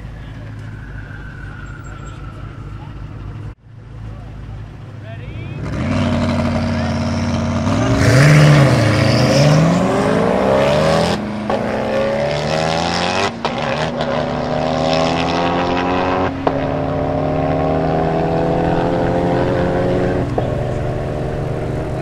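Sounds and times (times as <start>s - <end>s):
cars accelerating at full throttle: 0.0s - 22.0s.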